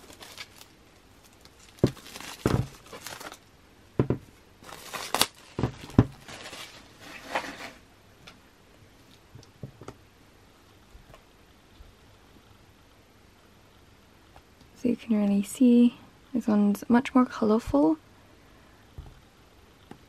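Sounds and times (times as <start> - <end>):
plastic wrapping crinkling: 0.0 - 3.5, 4.6 - 7.8
plastic case knocks: 1.8 - 2.8, 4.0 - 4.3.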